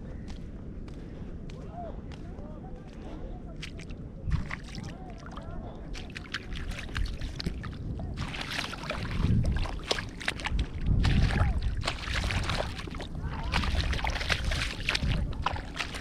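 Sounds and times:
wind buffeting microphone: 0.0 - 16.0
small waves lapping on shore: 3.6 - 16.0.

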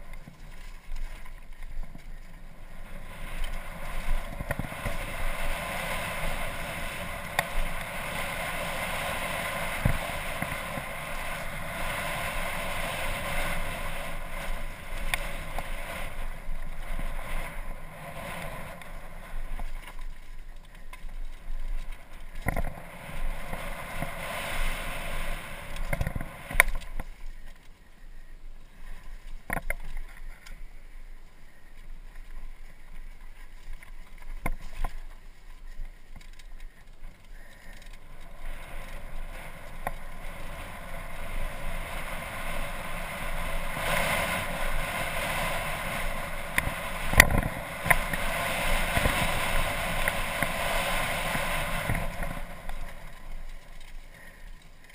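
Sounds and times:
bike tyre noise on dirt: 0.0 - 54.9
wind rushing on microphone: 38.1 - 53.3.

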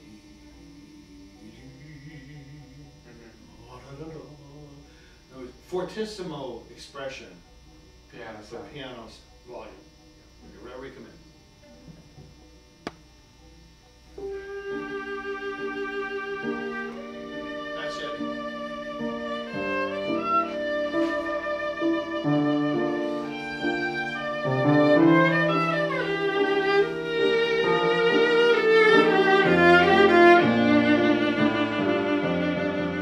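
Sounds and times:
piano accompaniment: 14.2 - 33.0
viola with vibrato: 14.2 - 33.0.

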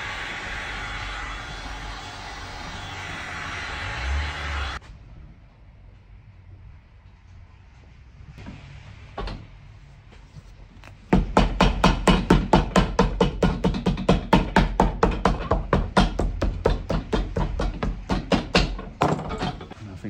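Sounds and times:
hammer tapping rapidly: 11.1 - 18.8.

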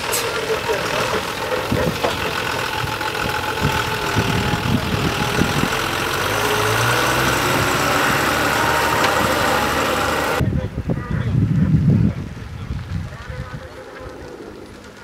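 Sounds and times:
diesel truck engine running: 0.0 - 10.4.

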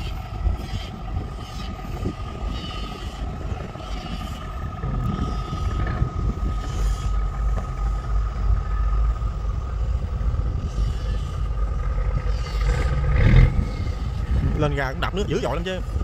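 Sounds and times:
diesel engine low rumble: 0.0 - 16.0
high whine: 0.0 - 16.0.

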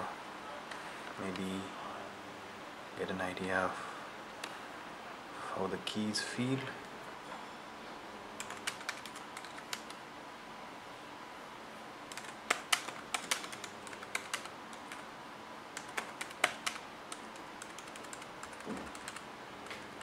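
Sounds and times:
keyboard keys clicking: 8.4 - 10.0, 12.1 - 15.0, 15.8 - 20.0.

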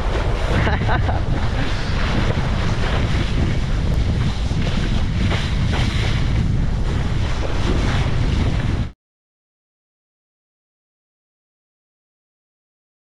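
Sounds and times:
water rushing and splashing: 0.0 - 8.9
wind buffeting microphone: 0.0 - 9.0.

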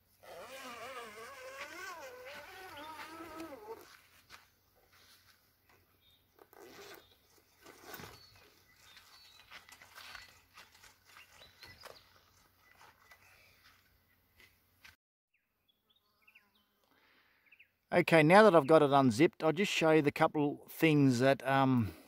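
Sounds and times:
insect buzzing: 0.1 - 4.0
zipper being unzipped: 0.2 - 4.0, 6.4 - 8.4.

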